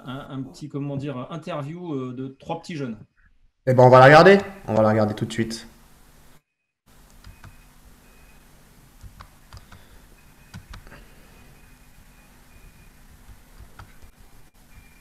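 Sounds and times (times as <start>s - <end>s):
low room noise: 0.0s - 15.0s
faint high electronic tone: 7.2s - 8.7s, 9.8s - 15.0s
mouse and keyboard clicks: 10.5s - 10.9s.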